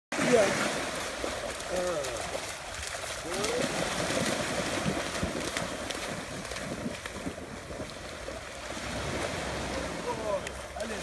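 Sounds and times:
small waves washing ashore: 0.1 - 11.0
wind buffeting microphone: 3.3 - 10.3.

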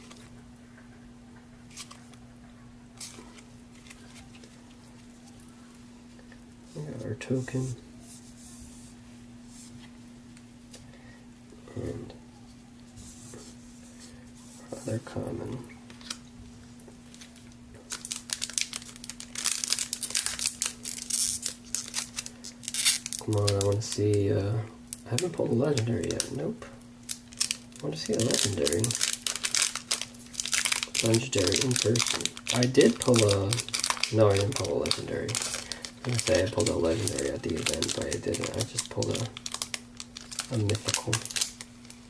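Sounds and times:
steady low hum: 0.0 - 42.0
foil wrapper crinkling and tearing: 17.0 - 24.3, 24.9 - 42.0
cards rustling: 17.1 - 24.2, 27.1 - 42.0.

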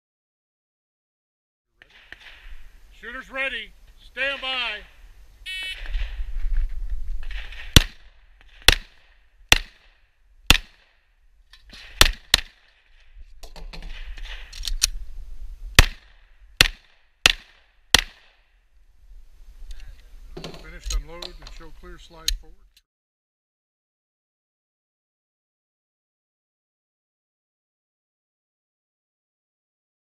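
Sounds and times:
pistol shots: 7.3 - 11.0, 11.7 - 12.9, 15.8 - 18.4.

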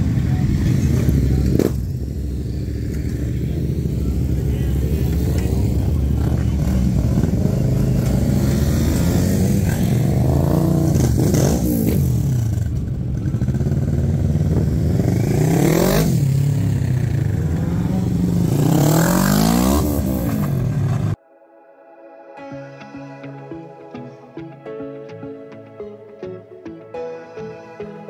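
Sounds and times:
motorcycle engines revving: 0.0 - 21.2.

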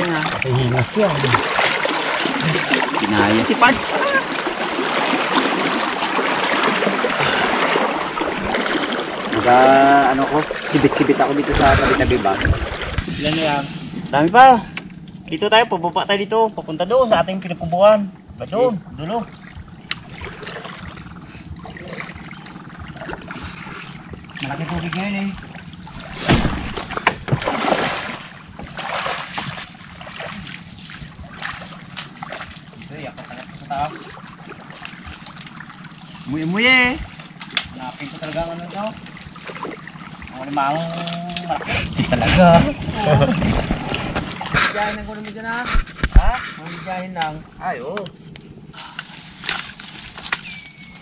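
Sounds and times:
water sloshing and splashing: 0.0 - 15.3, 18.1 - 51.0.

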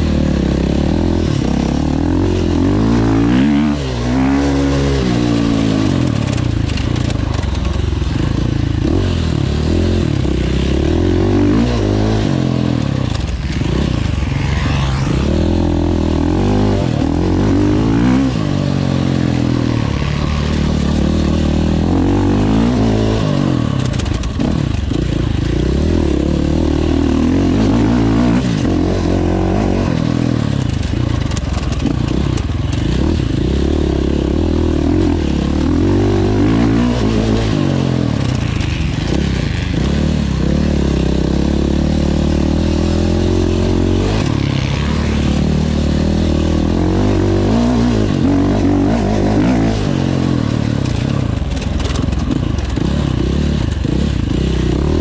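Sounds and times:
motorcycle engine revving: 0.0 - 55.0
bike rattling over rough ground: 5.5 - 9.0, 26.4 - 36.8, 48.7 - 54.6.

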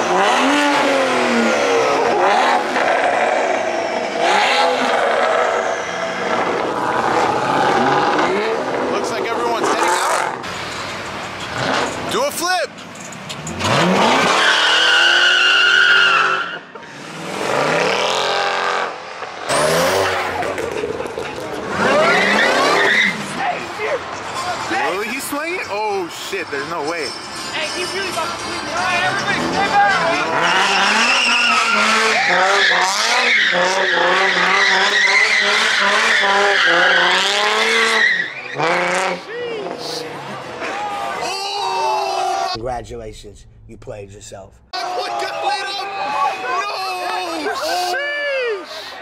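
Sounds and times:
car engine revving: 0.0 - 12.1, 13.0 - 16.3, 16.9 - 23.5, 27.4 - 40.6, 42.5 - 44.7
car accelerating past: 16.9 - 23.3
tyre squeal: 21.8 - 23.4, 26.6 - 39.1.

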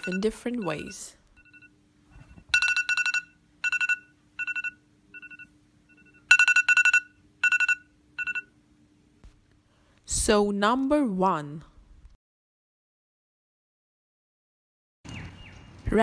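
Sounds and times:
phone alarm beeps: 0.0 - 8.6.

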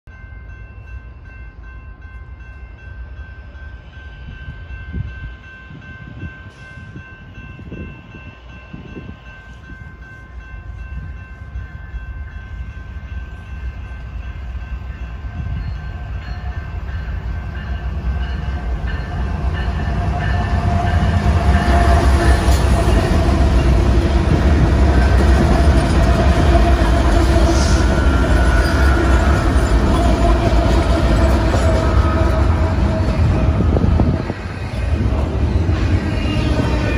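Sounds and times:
diesel locomotive rumble: 16.8 - 36.9.

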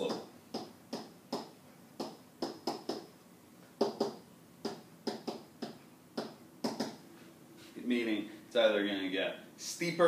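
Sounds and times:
marker writing on a whiteboard: 0.0 - 3.1, 3.8 - 7.0.

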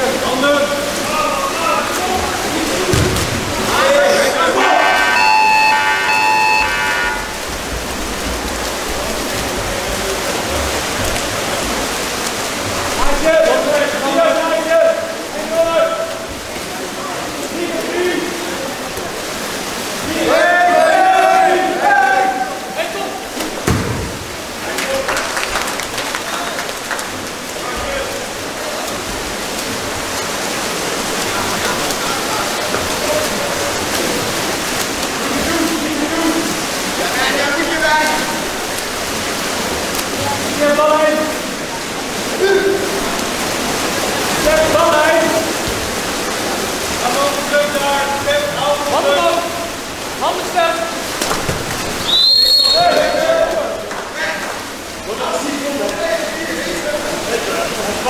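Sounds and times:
faint voices: 0.0 - 7.4
water splashing and churning: 0.0 - 58.0
pitched multi-tone sound: 5.0 - 7.4.

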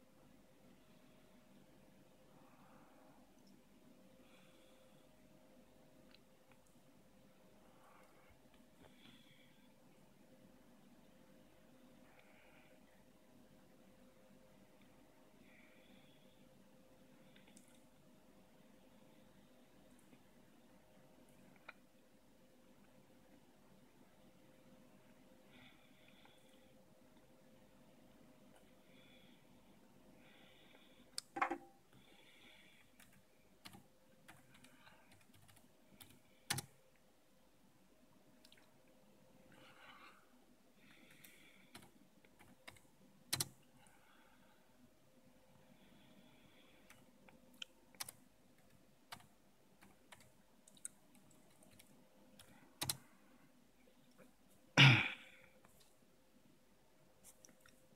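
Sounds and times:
laptop keys clicking: 32.9 - 36.8, 41.2 - 43.6, 47.9 - 53.0.

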